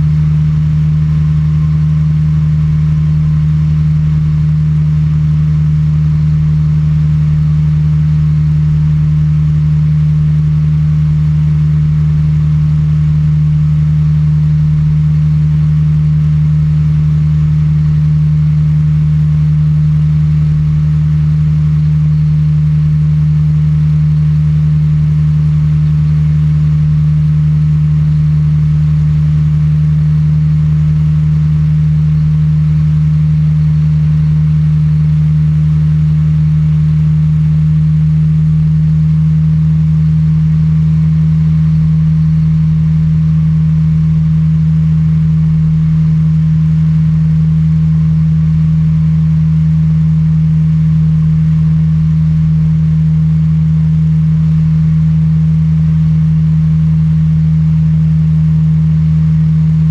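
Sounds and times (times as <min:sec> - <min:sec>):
microlight engine and propeller: 0:00.0 - 0:59.9.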